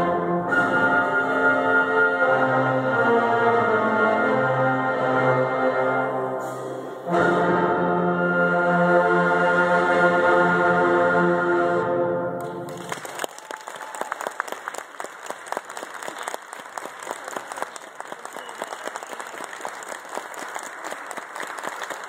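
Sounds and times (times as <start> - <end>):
audience applauding: 12.4 - 22.0.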